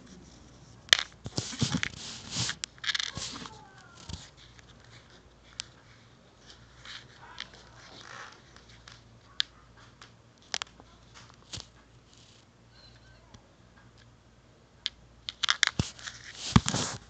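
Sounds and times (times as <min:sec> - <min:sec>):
fingers rustling: 0:00.0 - 0:09.5, 0:15.3 - 0:17.0.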